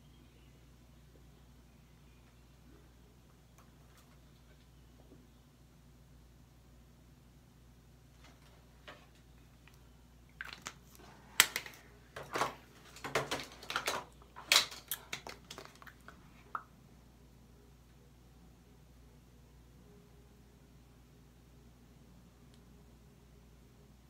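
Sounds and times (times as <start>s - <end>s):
plastic makeup items clacking: 10.4s - 16.2s.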